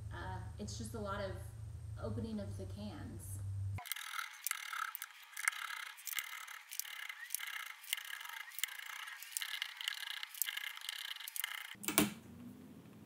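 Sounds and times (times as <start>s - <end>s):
can opener clicking and scraping: 3.8s - 11.8s.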